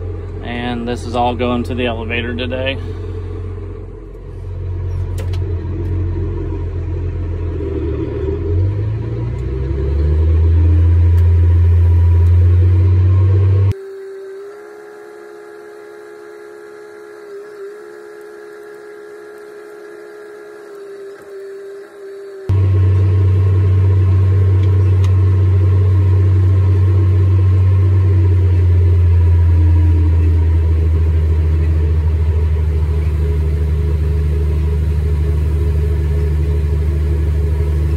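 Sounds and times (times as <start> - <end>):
tractor diesel engine rumbling: 0.0 - 13.8, 22.5 - 37.9
steady hum with whine: 0.0 - 37.9.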